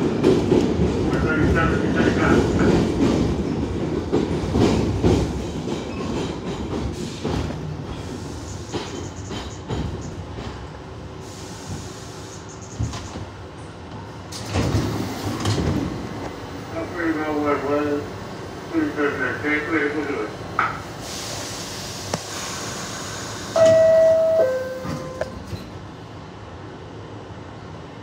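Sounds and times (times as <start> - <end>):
subway train rumbling on rails: 0.0 - 28.0.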